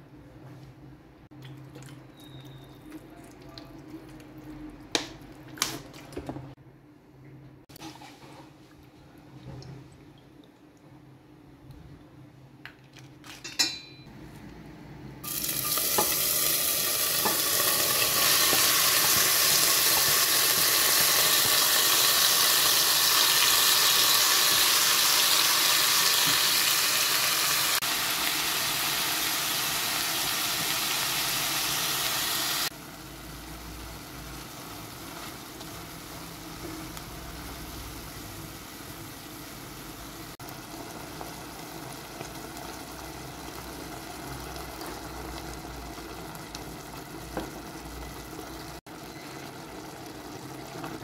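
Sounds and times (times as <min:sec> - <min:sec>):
meat sizzling in hot oil: 0:15.2 - 0:51.0.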